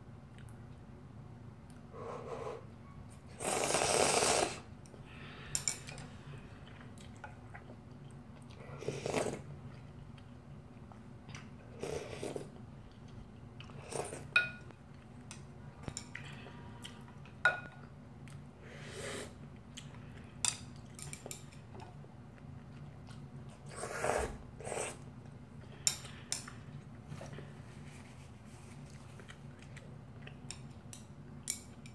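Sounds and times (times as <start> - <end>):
slurping broth: 3.3 - 4.7, 8.7 - 9.5, 11.7 - 12.5, 23.6 - 25.0
chewing: 5.8 - 14.3, 19.6 - 24.0, 28.8 - 31.0.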